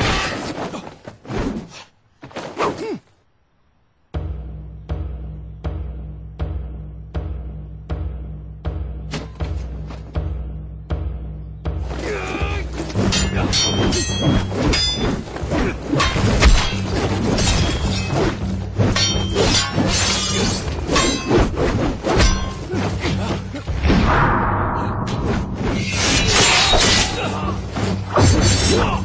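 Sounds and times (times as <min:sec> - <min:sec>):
dramatic film score: 0:04.1 - 0:29.0
long falling swoosh: 0:23.8 - 0:26.4.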